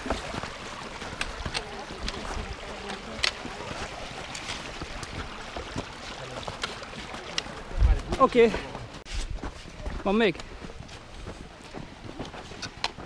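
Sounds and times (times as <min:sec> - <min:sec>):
stream rushing over stones: 0:00.0 - 0:09.1.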